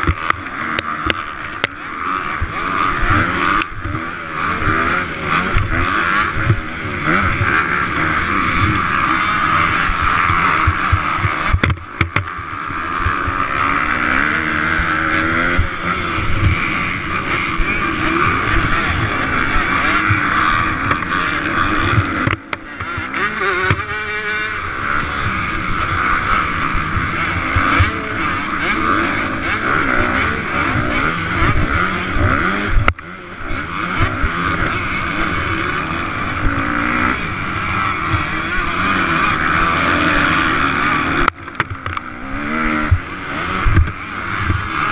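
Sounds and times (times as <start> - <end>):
motocross bike engine revving: 0.0 - 44.9.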